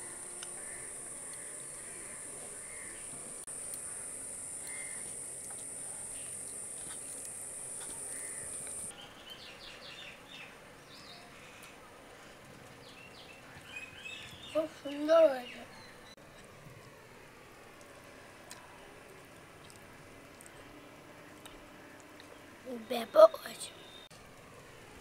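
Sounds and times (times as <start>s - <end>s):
bird chirps: 22.8s - 24.1s.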